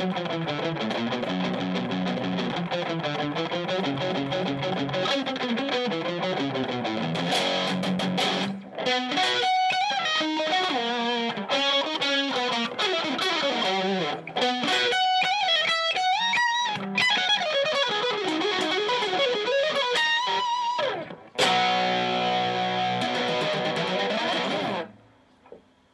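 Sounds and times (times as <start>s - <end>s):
distorted electric guitar lead: 0.0s - 25.6s
ringing guitar chord: 17.4s - 25.0s.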